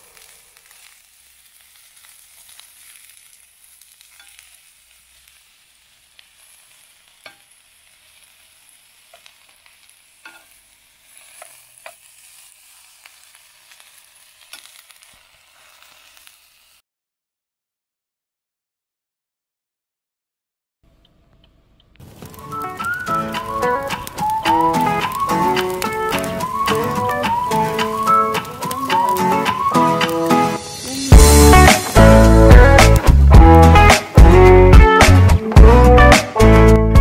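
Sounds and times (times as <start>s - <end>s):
vegetables sizzling in a pan: 0.0s - 16.8s, 22.0s - 34.2s
metal spoon clicking against pan: 4.1s - 4.4s, 7.2s - 7.5s, 10.2s - 10.6s.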